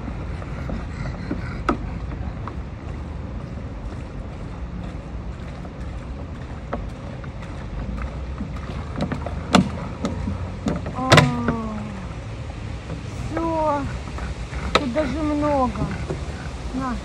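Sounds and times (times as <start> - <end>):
water sloshing and splashing: 0.0 - 17.0
wind rumbling on microphone: 0.0 - 17.0.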